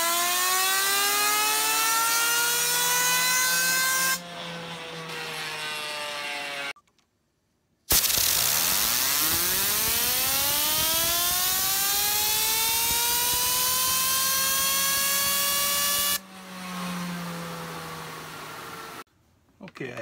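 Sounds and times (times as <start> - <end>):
spinner whine rising in pitch: 0.0 - 4.2, 7.9 - 19.0
compressed air hissing: 7.9 - 9.9.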